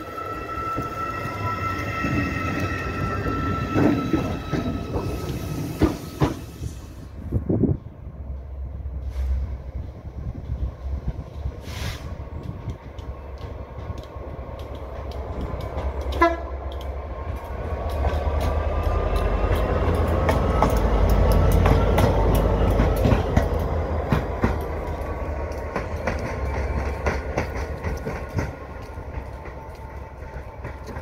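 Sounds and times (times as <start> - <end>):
diesel locomotive engine: 0.0 - 31.0
wheels clicking over rail joints: 9.8 - 31.0
locomotive horn toot: 16.1 - 16.6.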